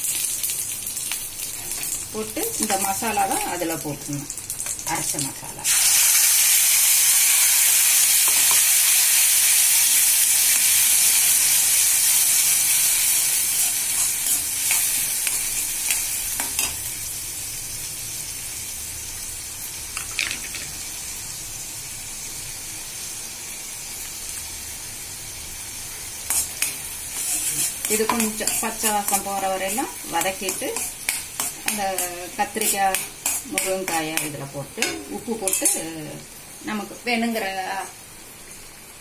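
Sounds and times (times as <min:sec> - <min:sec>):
paste sizzling in hot oil: 0:00.0 - 0:37.8
steel spoon stirring: 0:26.3 - 0:36.0.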